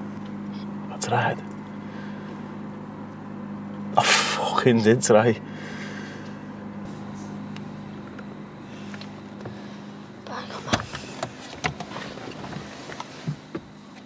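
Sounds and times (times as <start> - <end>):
car engine idling: 0.0 - 14.0
man sobbing and sniffing: 4.0 - 4.6.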